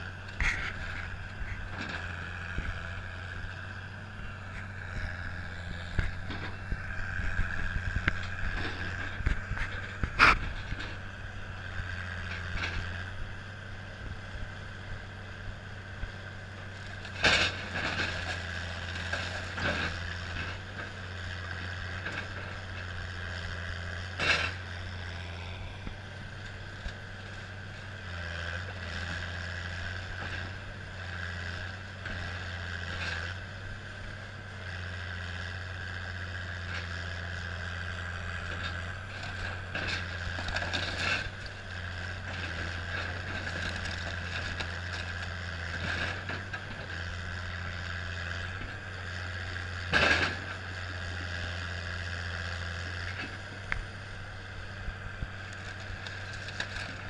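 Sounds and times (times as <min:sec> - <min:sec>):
excavator diesel engine drone: 0:00.0 - 0:57.0
breaking timber cracks and crashes: 0:39.2 - 0:41.4.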